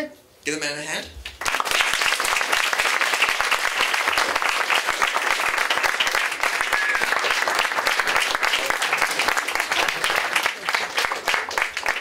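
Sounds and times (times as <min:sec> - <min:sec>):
audience applauding: 0:01.4 - 0:12.0.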